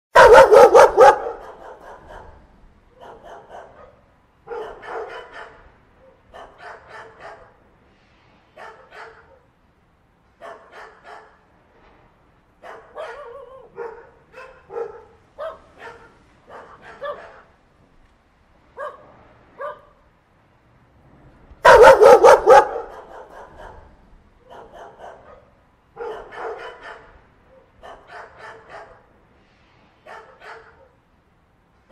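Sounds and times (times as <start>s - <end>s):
dog barking: 0.1s - 2.4s, 3.0s - 7.6s, 8.6s - 9.5s, 10.4s - 11.4s, 12.6s - 17.6s, 18.8s - 20.0s, 21.6s - 29.1s, 30.0s - 31.0s.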